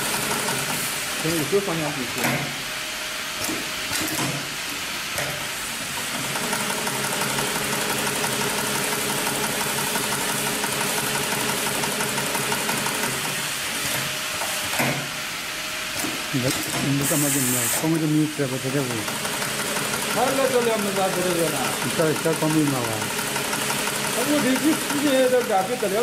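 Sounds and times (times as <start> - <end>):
sewing machine stitching: 6.0 - 13.4, 18.7 - 26.0.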